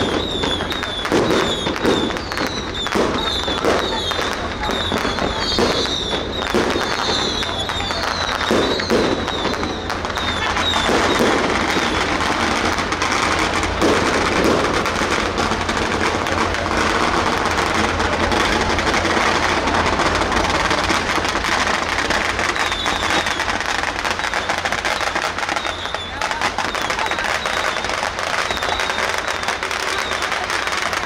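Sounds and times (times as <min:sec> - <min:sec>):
high wavering whistles: 0:00.0 - 0:12.3, 0:22.2 - 0:30.6
firecrackers crackling: 0:00.0 - 0:31.0.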